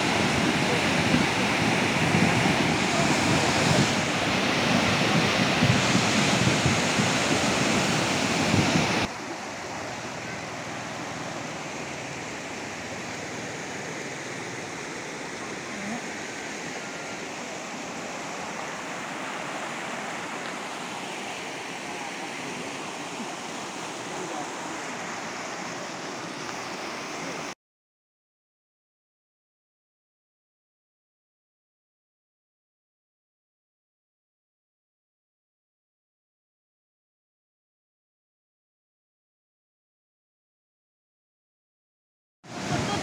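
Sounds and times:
floodwater rushing: 0.0 - 27.6, 42.5 - 43.0.

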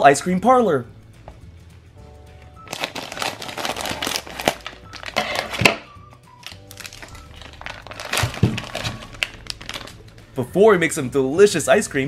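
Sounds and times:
background music: 0.0 - 12.0
plastic bag crinkling: 2.7 - 5.8, 6.4 - 10.2.

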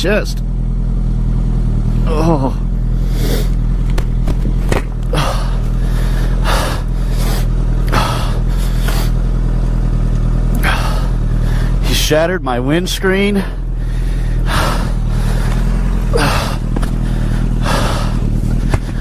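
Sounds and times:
motorcycle engine idling: 0.0 - 19.0
person exclaiming: 2.0 - 2.7
heavy breathing in helmet: 2.9 - 3.7, 5.0 - 9.3, 10.6 - 11.8, 13.4 - 19.0.

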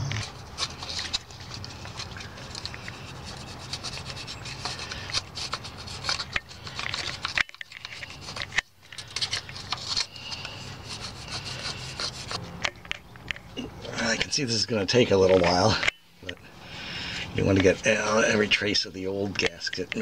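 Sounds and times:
plastic scraper scraping sealant: 0.2 - 12.4.

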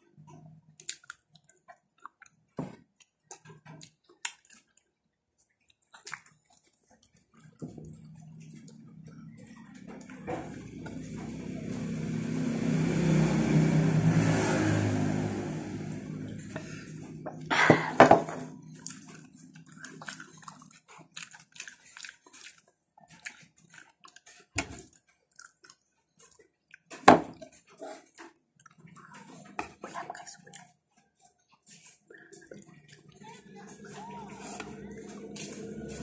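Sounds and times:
chewing sounds: 0.3 - 11.9, 18.5 - 36.0
motor vehicle passing: 8.0 - 19.7, 33.1 - 36.0.

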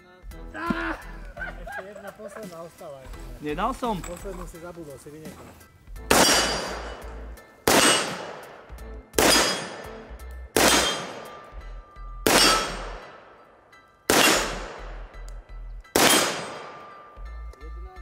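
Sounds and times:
rifle shots with echo: 6.1 - 11.5, 12.2 - 15.2, 15.9 - 17.1.

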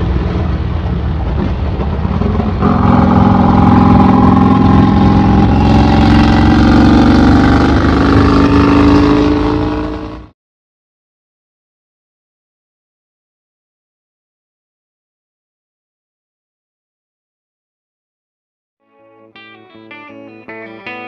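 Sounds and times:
motorcycle engine accelerating: 0.0 - 10.3.

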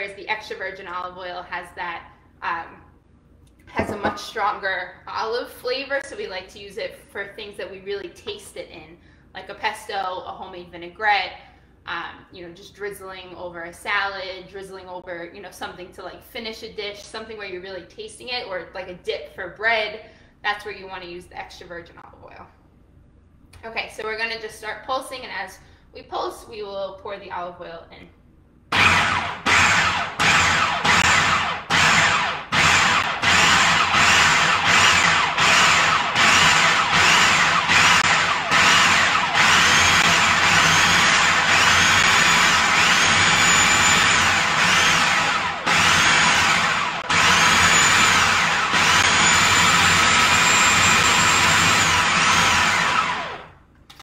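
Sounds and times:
food processor motor pulsing: 28.7 - 53.5.

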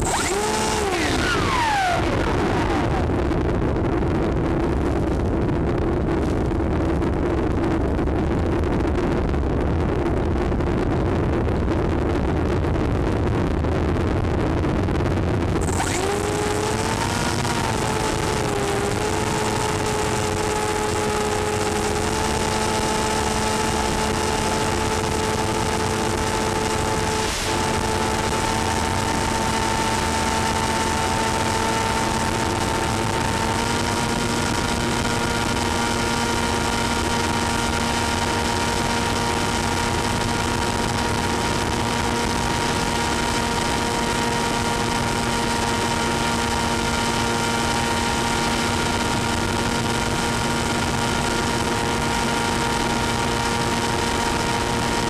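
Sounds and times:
model airplane motor whine: 0.0 - 3.3, 15.6 - 55.0
rushing air: 26.8 - 29.6.

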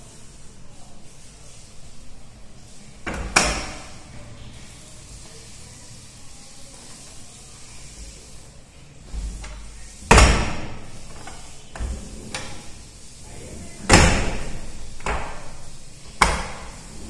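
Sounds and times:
sliding shutters banging shut: 3.0 - 4.0, 9.1 - 12.8, 13.8 - 17.0.

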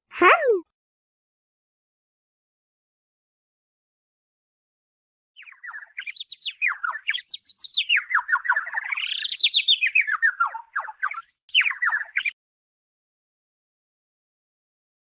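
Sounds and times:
cartoon bird chirping: 0.2 - 0.6.

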